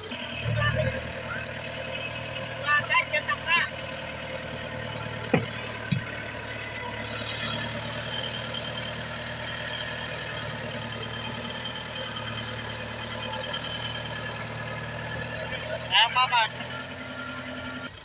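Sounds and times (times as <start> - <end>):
tractor engine idling: 0.0 - 18.0
short thump: 5.3 - 6.2.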